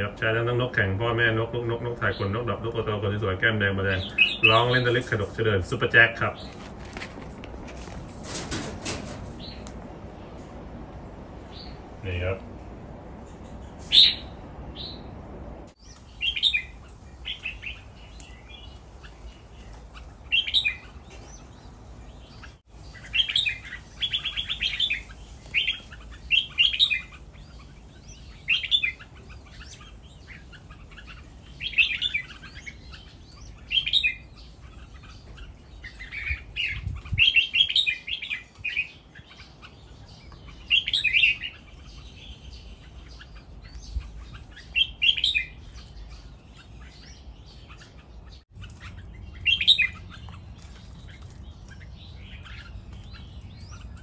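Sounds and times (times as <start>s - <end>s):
birds singing whistled phrases: 3.8s - 5.0s, 13.7s - 15.1s, 15.8s - 50.4s.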